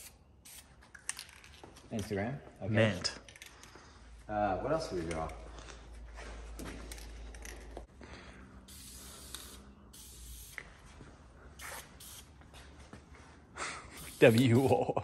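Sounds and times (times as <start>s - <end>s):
spray paint can hissing: 0.0s - 0.7s, 8.7s - 10.7s, 11.6s - 12.3s, 14.0s - 14.9s.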